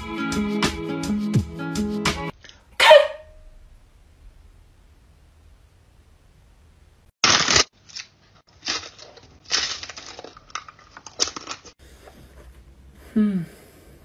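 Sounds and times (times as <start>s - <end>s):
crunchy snack chewing: 7.2s - 11.8s.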